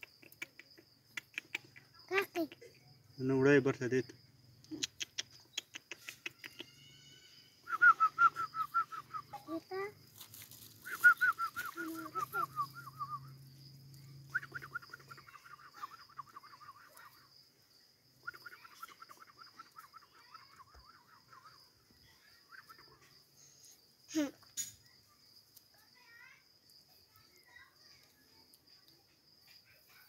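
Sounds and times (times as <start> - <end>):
high-pitched insect drone: 3.0 - 4.6, 6.0 - 23.9
bird calling: 10.7 - 13.4, 14.2 - 17.2, 18.2 - 23.0.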